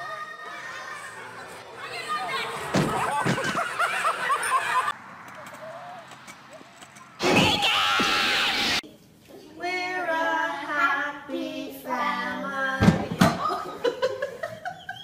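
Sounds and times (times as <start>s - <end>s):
loud noisy burst: 7.2s - 8.8s.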